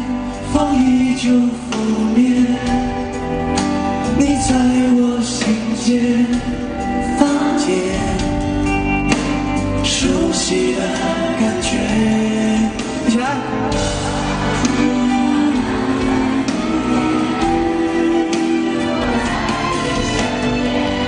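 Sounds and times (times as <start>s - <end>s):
live band accompaniment: 0.0s - 21.0s
man singing: 0.0s - 21.0s.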